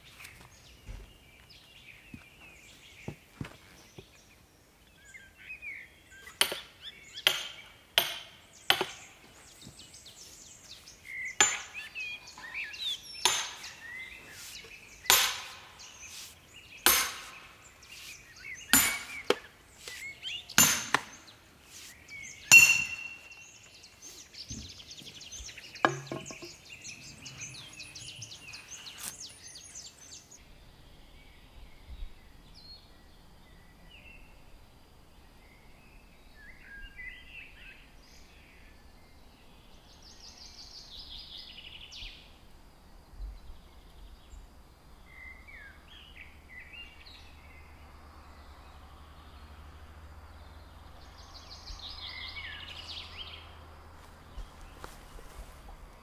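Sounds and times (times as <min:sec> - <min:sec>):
axe blows splitting wood: 0:07.3 - 0:09.1, 0:11.4 - 0:11.9, 0:13.2 - 0:23.4.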